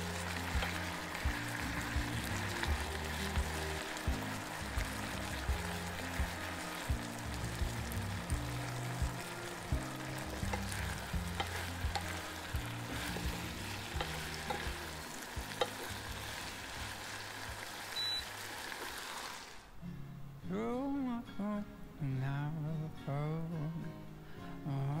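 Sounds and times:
food sizzling in a frying pan: 0.0s - 19.7s
spatula knocking and scraping pan: 10.1s - 16.9s.

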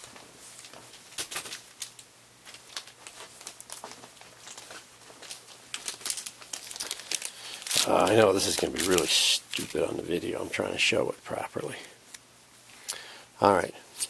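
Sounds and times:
plastic bag crinkling: 0.0s - 10.6s.

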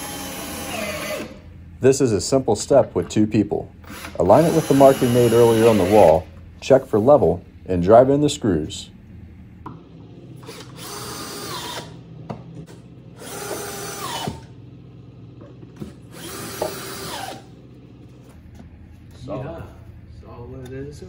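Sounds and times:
cordless drill driving screws: 0.0s - 1.4s, 3.8s - 6.3s, 10.4s - 12.0s, 13.2s - 14.5s, 16.1s - 17.5s.

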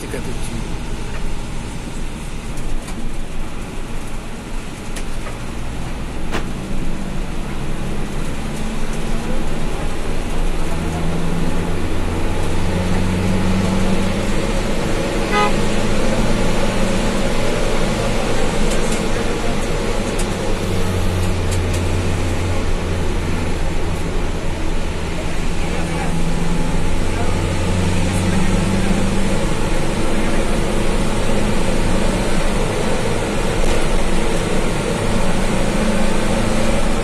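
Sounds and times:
bus engine: 0.0s - 37.0s
road noise: 0.0s - 37.0s
horn toot: 15.2s - 16.0s.

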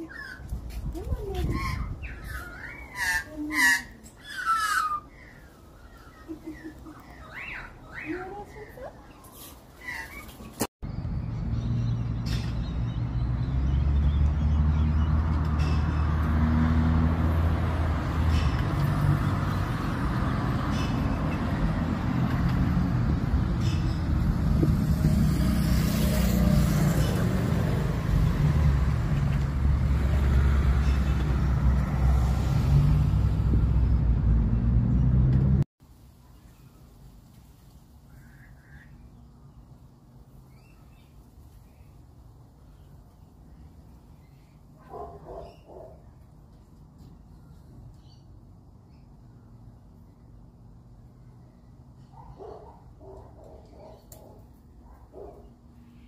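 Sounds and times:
road traffic noise: 0.0s - 56.0s
vehicle engine rumbling: 10.8s - 35.7s.

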